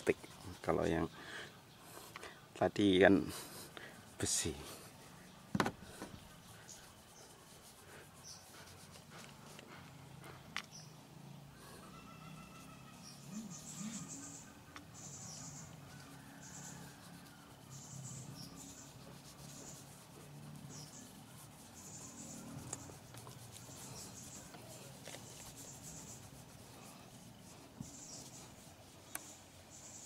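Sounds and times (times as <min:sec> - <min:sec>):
hand rubbing plastic helmet shell: 0:00.0 - 0:00.9, 0:03.9 - 0:10.9, 0:14.7 - 0:29.9.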